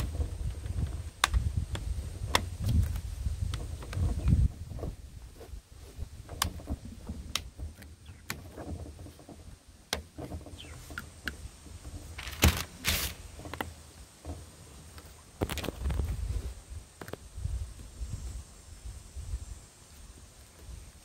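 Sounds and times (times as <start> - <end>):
plastic sheeting rustling: 12.2 - 13.4.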